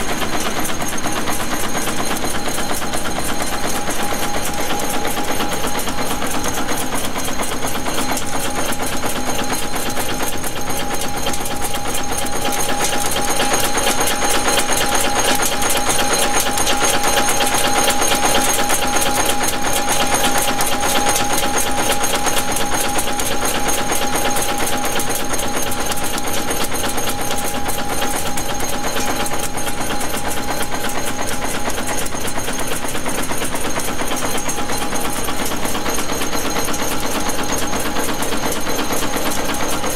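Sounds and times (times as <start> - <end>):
machine clattering: 0.0 - 39.9
steady machine tone: 0.0 - 39.9.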